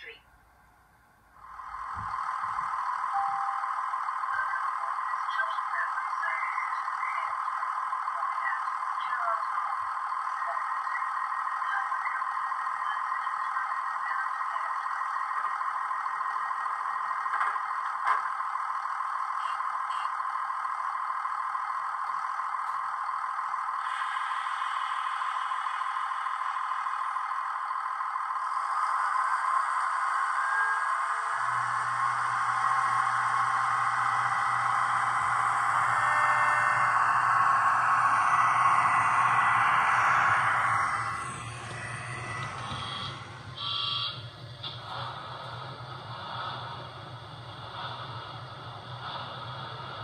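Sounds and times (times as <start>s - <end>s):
diesel train idling hum: 0.0s - 50.0s.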